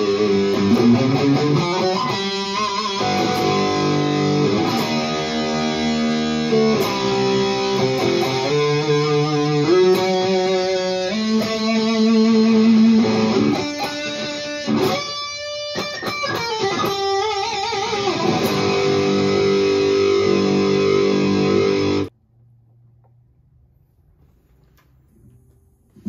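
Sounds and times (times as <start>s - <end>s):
distorted electric guitar: 0.0s - 22.1s
faint low hum: 22.1s - 26.0s.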